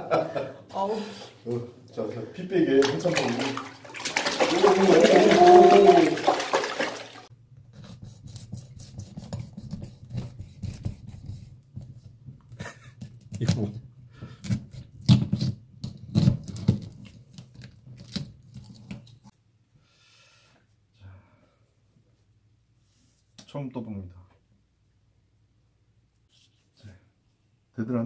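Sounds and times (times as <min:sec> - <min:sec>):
water splashing in a cooler: 0:02.7 - 0:07.3.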